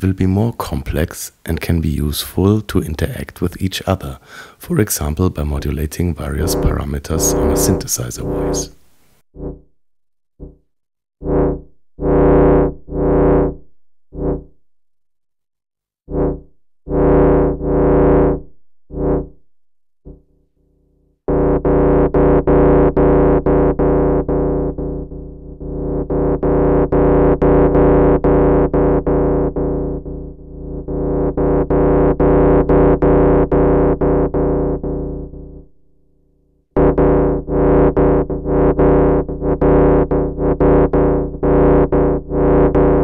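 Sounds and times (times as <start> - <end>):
synthesizer tone pulsing: 6.4 - 9.7, 10.4 - 14.6, 16.1 - 19.4, 21.3 - 35.7, 36.8 - 43.0.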